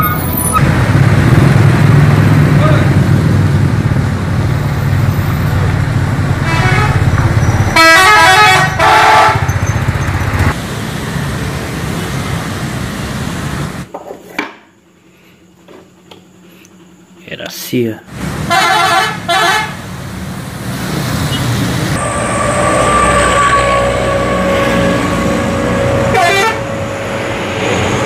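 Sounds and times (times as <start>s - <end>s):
bus diesel engine running: 0.0s - 13.9s, 18.1s - 28.0s
bus horn short changing notes: 6.4s - 9.6s, 18.5s - 19.8s, 22.0s - 27.6s.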